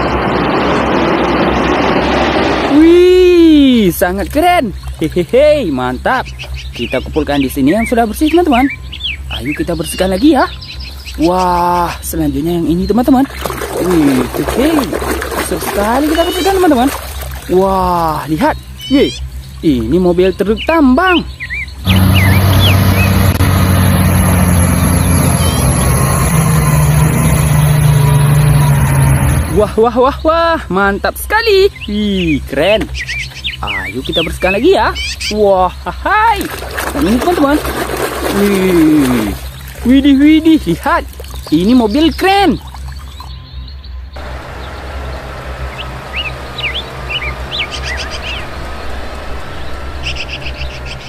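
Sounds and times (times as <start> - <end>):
small birds chirping: 0.0 - 28.7, 29.5 - 51.0
steady low rumble: 0.0 - 30.3, 43.9 - 51.0
haul truck diesel engine running: 21.3 - 29.7, 44.1 - 51.0.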